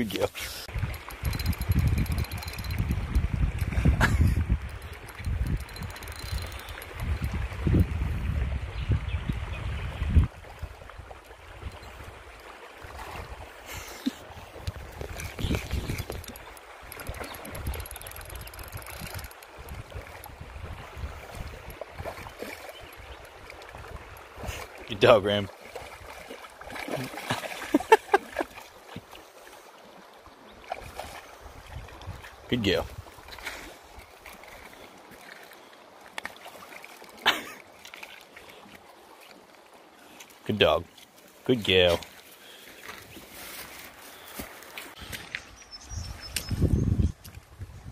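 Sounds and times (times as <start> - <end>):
stream running: 0.0 - 46.6
river water splashing and trickling: 0.0 - 47.9
quick clicks: 1.2 - 3.8, 4.6 - 7.4, 15.3 - 19.8.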